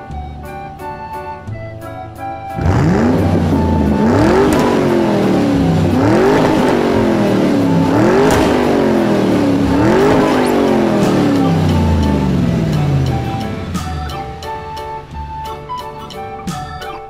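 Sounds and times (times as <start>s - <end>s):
synthetic engine revving whine: 2.6s - 14.5s.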